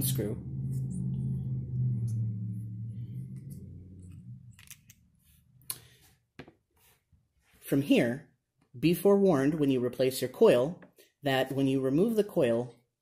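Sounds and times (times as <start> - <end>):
low hum: 0.0 - 6.0.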